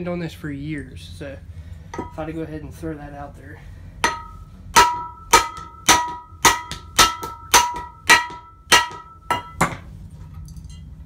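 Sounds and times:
hammer striking metal: 1.9 - 2.3, 4.0 - 9.9.

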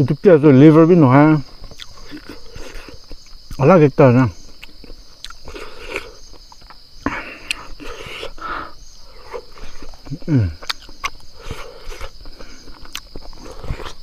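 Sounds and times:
high-pitched insect drone: 0.0 - 14.0
close-up chewing with lip smacks: 1.6 - 3.6, 4.5 - 6.8, 9.2 - 14.0.

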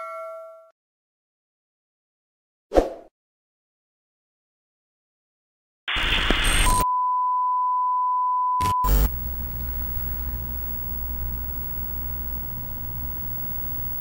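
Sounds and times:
television static: 5.9 - 6.8, 8.6 - 14.0.

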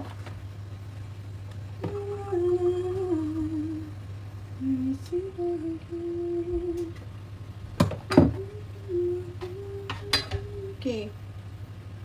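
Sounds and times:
steady low hum: 0.0 - 12.0
woman humming a tune: 1.8 - 4.0, 4.6 - 7.0, 8.2 - 11.1.

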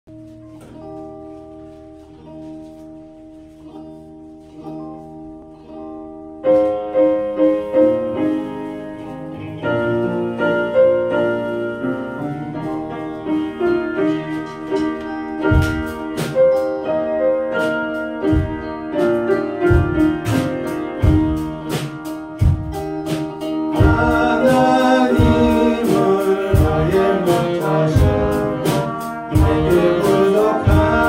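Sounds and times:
piano melody: 0.1 - 31.0
soft keyboard chords: 0.1 - 31.0
saxophones playing: 7.6 - 31.0.

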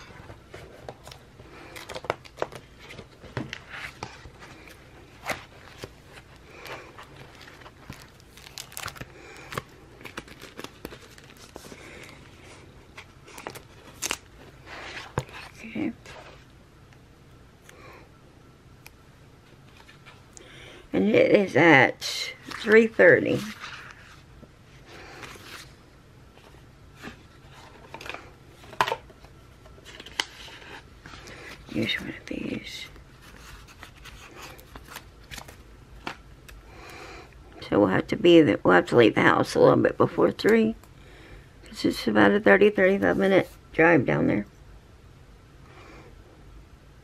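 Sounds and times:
paper rustling: 0.0 - 16.4, 22.4 - 24.3.

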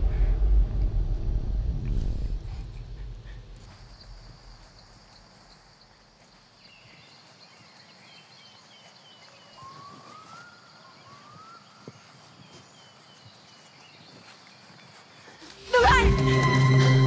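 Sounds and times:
high insect drone: 1.9 - 12.5
birds chirping: 2.0 - 15.9
rising bird whistles: 9.4 - 12.0.

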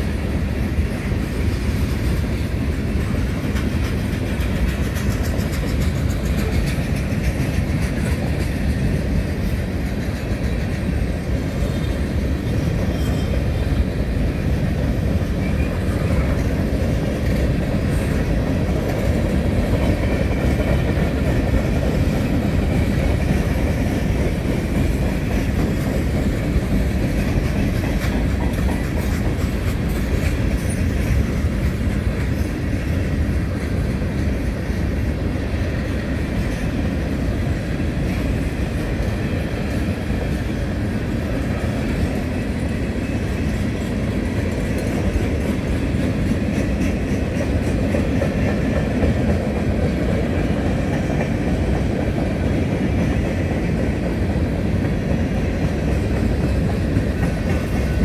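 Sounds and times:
freight train wheels clickety-clack: 0.0 - 58.0.

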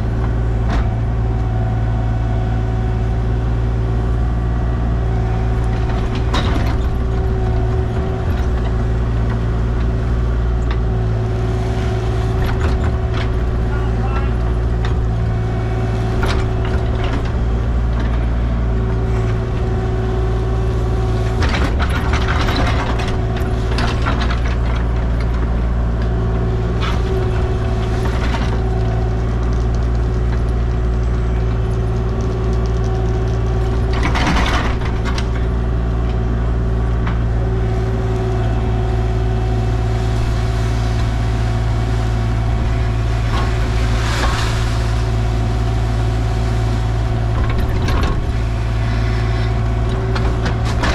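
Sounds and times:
heavy machinery engine running: 0.0 - 50.9
scraping and clanking: 39.9 - 50.9.

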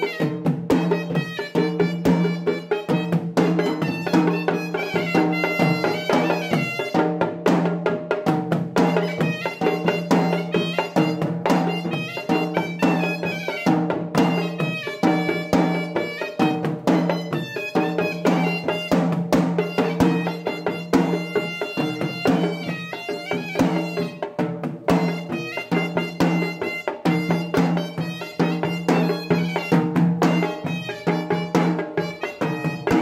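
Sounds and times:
reedy wind instrument melody: 0.0 - 7.3, 8.8 - 33.0
traditional drumming: 0.0 - 33.0.

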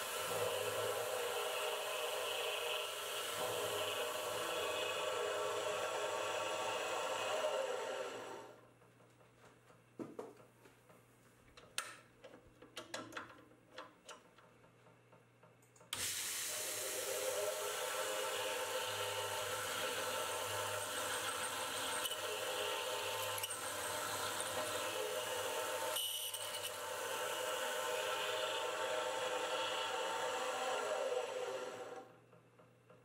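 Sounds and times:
milling machine spindle whine: 0.0 - 8.6, 16.5 - 32.1.

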